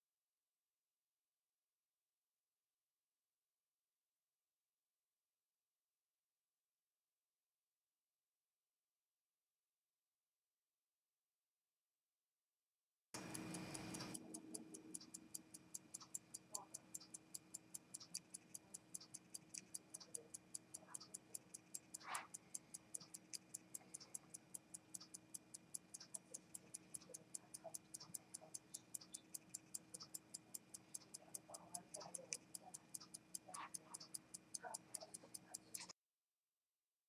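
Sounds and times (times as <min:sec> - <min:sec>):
faint hum: 0:13.2 - 0:35.9
pocket watch ticking: 0:13.2 - 0:35.9.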